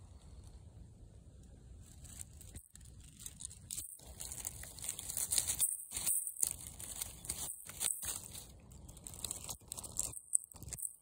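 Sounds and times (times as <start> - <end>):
dry leaves rustling: 1.8 - 11.0.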